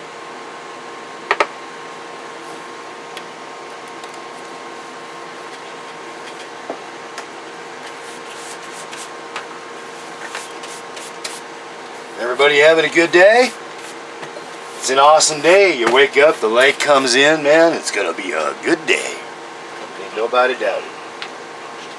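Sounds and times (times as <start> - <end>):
electronic equipment hiss and hum: 0.0 - 21.9.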